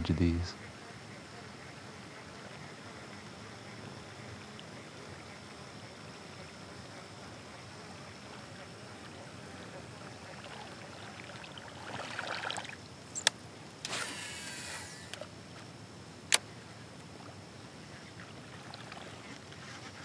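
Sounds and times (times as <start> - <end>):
rustle: 0.0 - 20.0
fishing reel sharp click: 13.2 - 15.3
reel spool whirring: 13.8 - 15.3.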